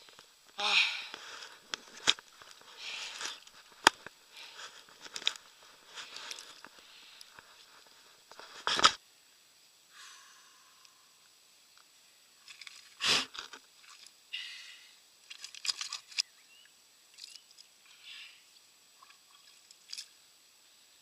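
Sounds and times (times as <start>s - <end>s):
fish handling rustles and clicks: 1.1s - 9.0s, 12.4s - 14.1s, 15.2s - 16.2s.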